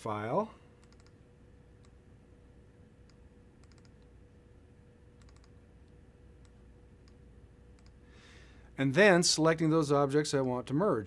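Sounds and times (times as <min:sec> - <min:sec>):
faint steady hum: 0:00.0 - 0:11.0
computer mouse clicks: 0:00.8 - 0:01.2, 0:03.0 - 0:04.1, 0:05.2 - 0:08.0.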